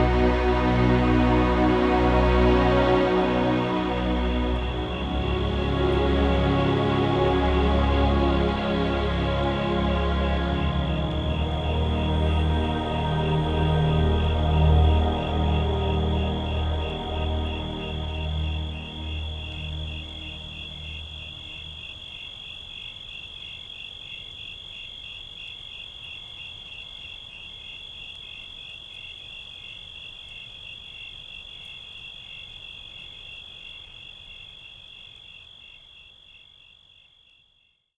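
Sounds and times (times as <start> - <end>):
low music notes: 0.0 - 21.8
crickets chirping: 0.0 - 37.8.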